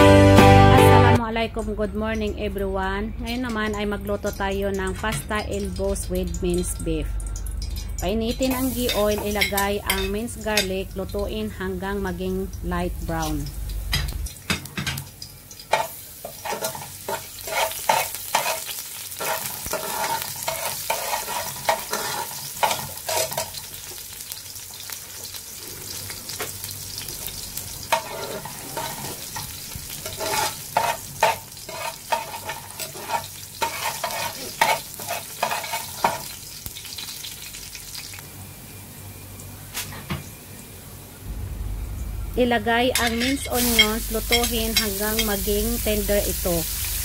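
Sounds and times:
garlic sizzling in oil: 0:03.3 - 0:40.4, 0:42.9 - 0:47.0
spoon scraping metal pot: 0:16.3 - 0:23.4, 0:30.0 - 0:36.2.

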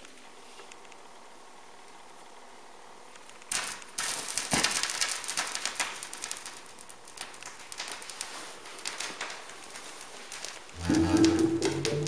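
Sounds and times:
vinyl crackle and pops: 0:03.1 - 0:12.0
music from record: 0:10.8 - 0:12.0.

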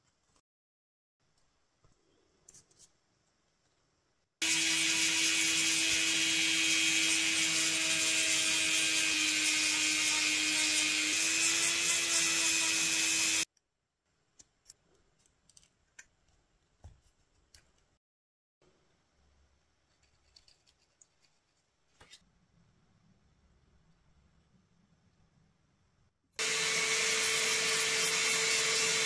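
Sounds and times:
handheld power tool running: 0:04.4 - 0:13.5, 0:26.4 - 0:29.0
light clicks and scratches: 0:19.8 - 0:22.3.

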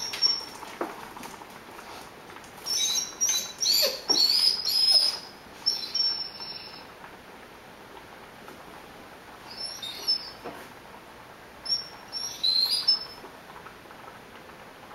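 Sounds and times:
dog whining: 0:02.6 - 0:06.9, 0:09.5 - 0:10.5, 0:11.7 - 0:13.2.

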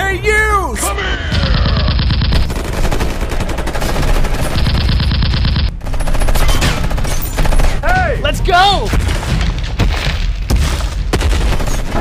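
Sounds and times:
automatic gunfire: 0:01.4 - 0:07.8.

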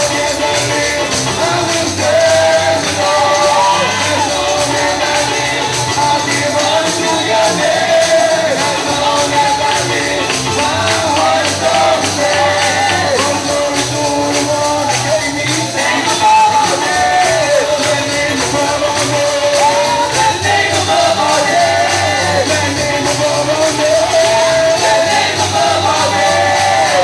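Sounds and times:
bass line: 0:00.0 - 0:27.0
people singing worship music: 0:00.0 - 0:27.0
tambourine beat: 0:00.0 - 0:27.0.

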